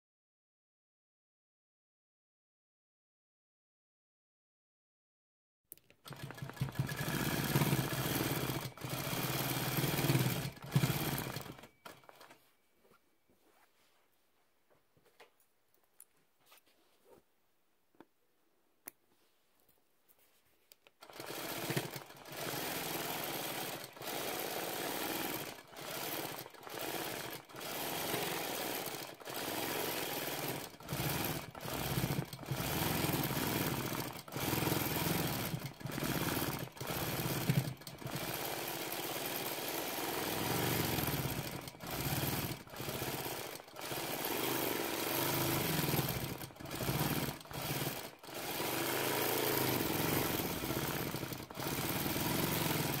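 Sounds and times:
quilting machine stitching: 5.9 - 12.4, 21.0 - 53.0.

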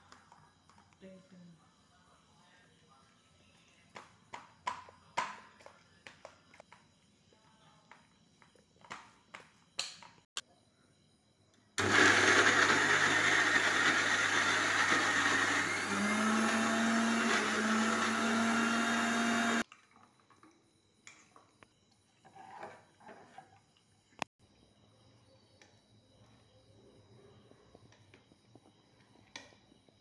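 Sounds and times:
electric mixer grinder running: 11.8 - 19.6.

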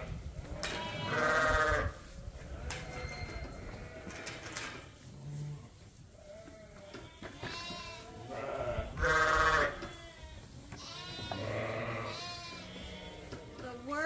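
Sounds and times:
lambs bleating: 0.6 - 2.0, 6.2 - 13.5.

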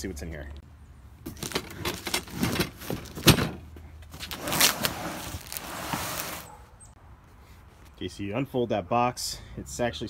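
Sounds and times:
cardboard rustling: 4.1 - 6.6.

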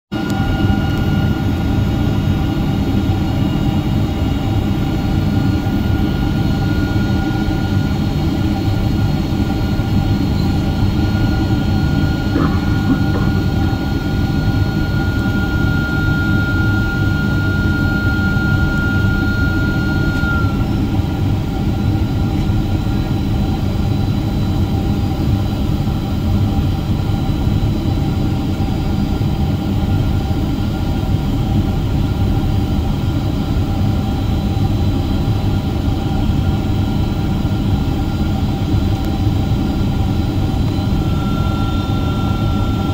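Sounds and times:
airplane cabin noise: 0.2 - 42.9
thin high whine: 10.4 - 20.8.

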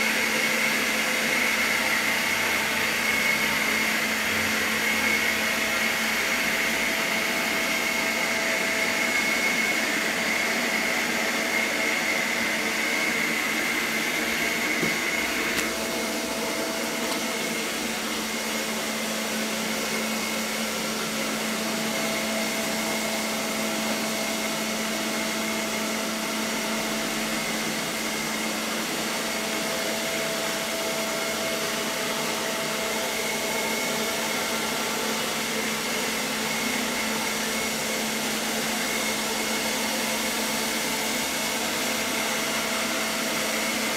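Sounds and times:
robot vacuum whirring: 4.7 - 25.2.

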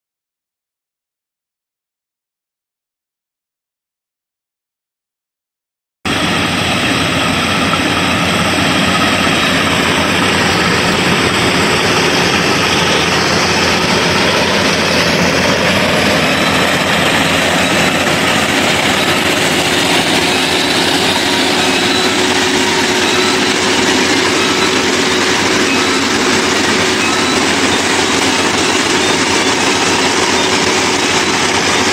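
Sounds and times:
combine harvester engine and threshing: 6.1 - 31.9.

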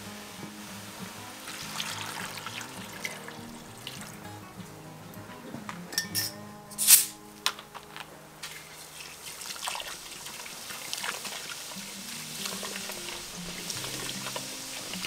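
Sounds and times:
background music: 0.0 - 15.0
stock pouring into pot: 1.4 - 4.4, 8.4 - 15.0.

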